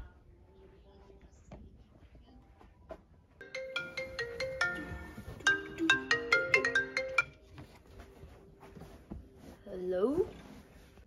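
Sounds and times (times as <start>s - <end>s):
phone ringtone melody: 3.4s - 7.6s.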